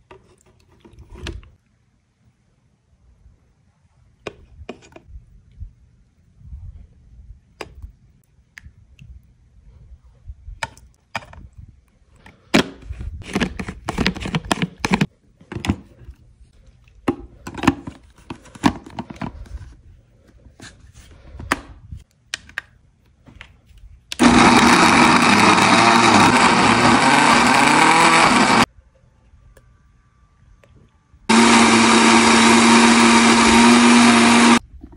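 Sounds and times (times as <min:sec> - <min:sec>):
blender motor chopping: 0:24.2 - 0:28.7, 0:31.3 - 0:34.6.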